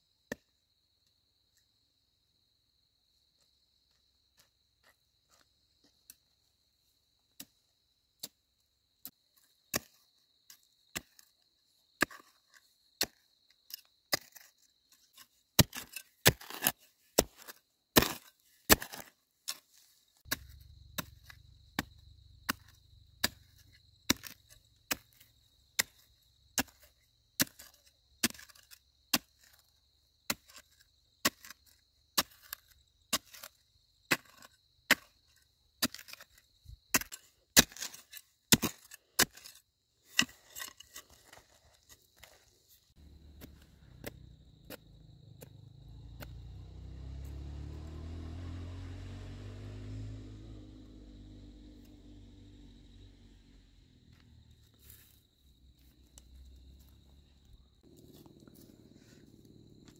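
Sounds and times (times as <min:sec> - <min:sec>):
blade chopping bamboo: 0:15.6 - 0:19.6, 0:20.2 - 0:25.2.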